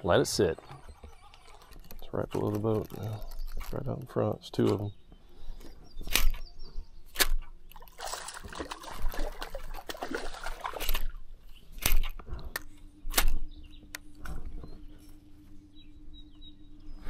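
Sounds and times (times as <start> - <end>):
steady low hum: 0.0 - 17.0
water lapping against boat hull: 7.6 - 11.3.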